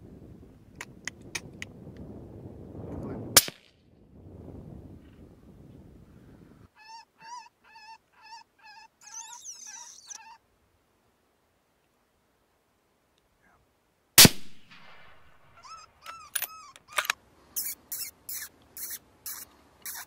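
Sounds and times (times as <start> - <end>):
high squealing animal calls: 6.8 - 10.4, 15.5 - 20.0
gunshot: 14.2 - 15.3.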